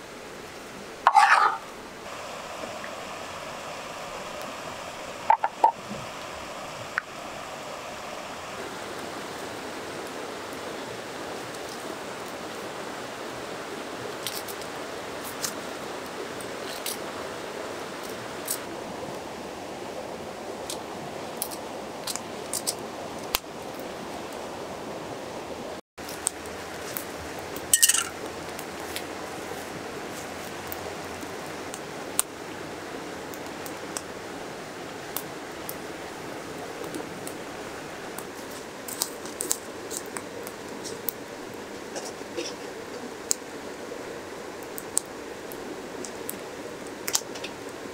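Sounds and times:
river flowing: 0.0s - 47.9s
metal pot clanking on grill: 27.7s - 28.2s.

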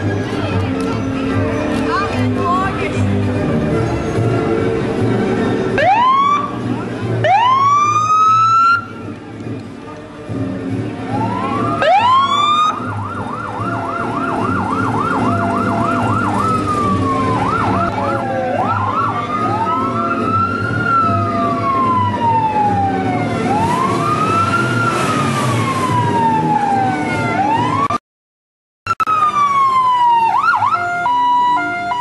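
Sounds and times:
electronic police siren: 11.6s - 28.0s.

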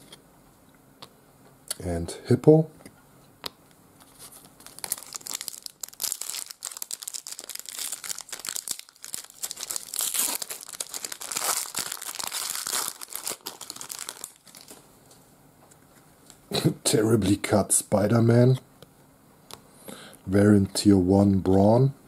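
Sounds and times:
foil wrapper crinkling and tearing: 4.3s - 14.8s.

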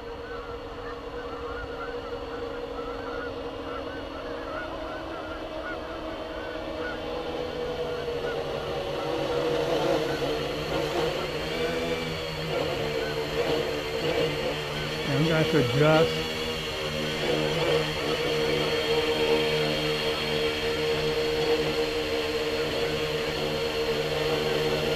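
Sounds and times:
quadcopter propellers whining: 0.0s - 24.9s.

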